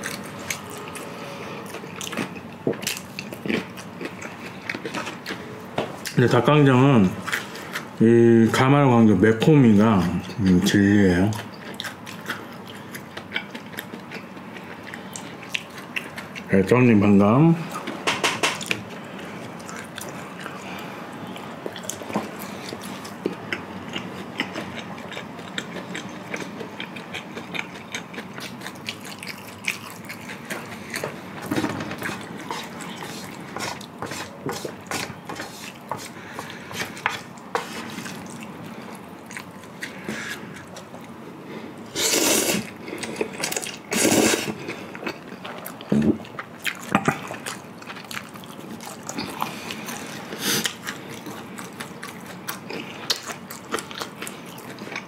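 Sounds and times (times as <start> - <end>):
wet chewing: 0.0 - 6.2, 11.3 - 16.5, 18.6 - 41.3, 42.0 - 55.0
noodle slurps: 41.9 - 42.7, 43.9 - 44.6.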